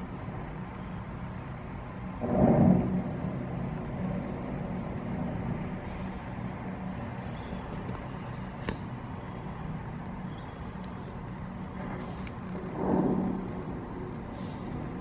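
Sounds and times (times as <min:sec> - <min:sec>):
distant city traffic hum: 0:00.0 - 0:15.0.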